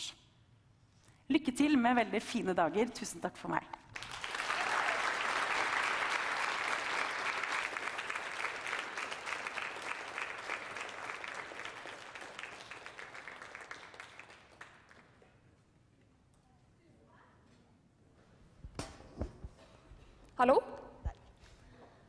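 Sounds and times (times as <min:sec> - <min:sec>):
audience applauding: 0:03.9 - 0:15.3.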